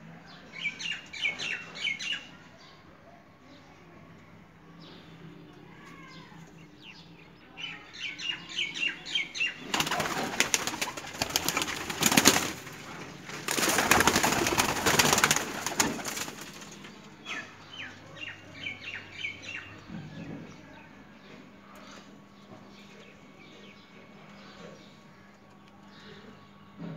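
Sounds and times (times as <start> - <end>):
pigeons flapping wings: 9.7 - 16.8.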